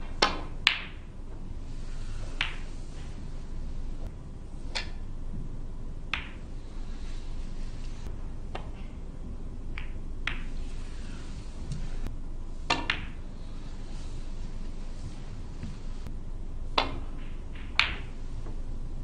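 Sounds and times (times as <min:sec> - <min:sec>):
snooker balls clicking: 0:00.0 - 0:01.1, 0:01.7 - 0:04.1, 0:04.7 - 0:05.1, 0:06.1 - 0:07.0, 0:07.6 - 0:09.0, 0:09.7 - 0:13.7, 0:16.7 - 0:18.6
low hall hum: 0:00.0 - 0:19.0.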